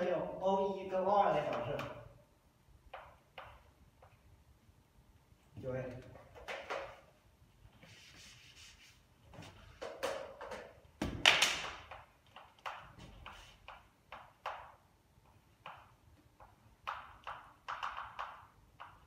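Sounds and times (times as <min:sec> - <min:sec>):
chalk on blackboard: 0:07.7 - 0:09.2, 0:13.2 - 0:13.9
eraser rubbing on board: 0:07.8 - 0:09.1.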